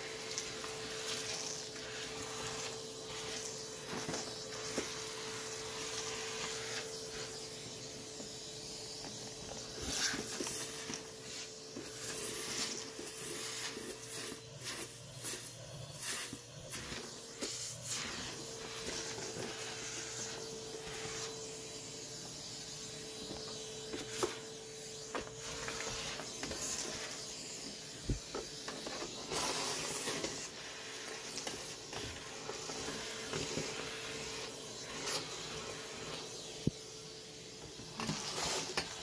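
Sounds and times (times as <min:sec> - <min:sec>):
vacuum cleaner running: 0:00.0 - 0:39.0.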